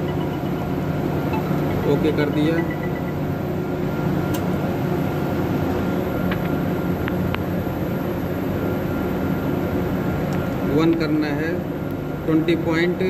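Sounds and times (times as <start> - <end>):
mechanical drone with low hum: 0.0 - 13.0.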